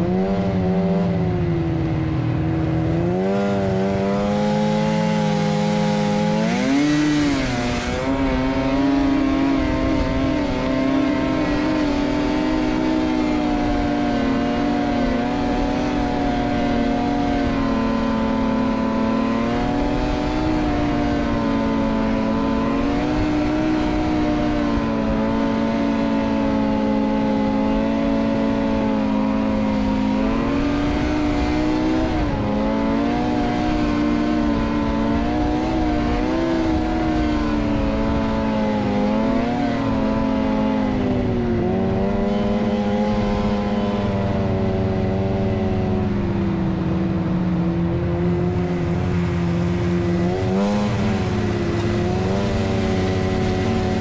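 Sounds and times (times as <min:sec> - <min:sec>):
snowmobile engine running: 0:00.0 - 0:54.0.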